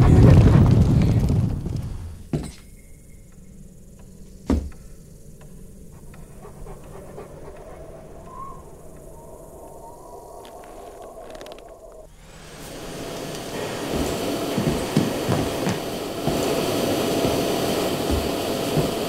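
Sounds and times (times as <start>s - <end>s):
faint breathy hiss: 2.0s - 19.0s
loud rumble: 5.1s - 19.0s
boot steps on wooden floor: 13.5s - 19.0s.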